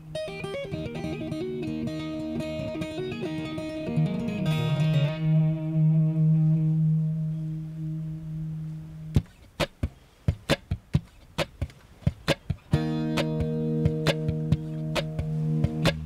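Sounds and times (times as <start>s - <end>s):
acoustic guitar chord ringing: 0.0s - 9.2s, 12.7s - 16.0s
percussive taps on guitar: 9.1s - 16.0s.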